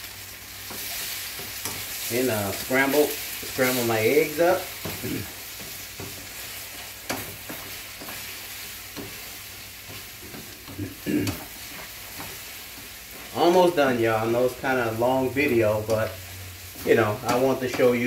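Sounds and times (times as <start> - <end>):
eggs sizzling in grease: 0.0 - 18.0
spatula scraping a skillet: 0.6 - 14.8.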